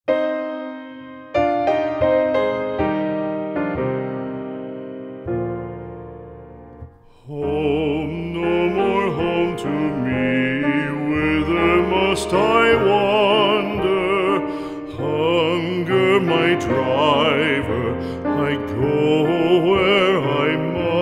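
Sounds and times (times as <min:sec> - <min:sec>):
held piano chord: 0:00.1 - 0:21.0
person singing slow song: 0:07.0 - 0:21.0.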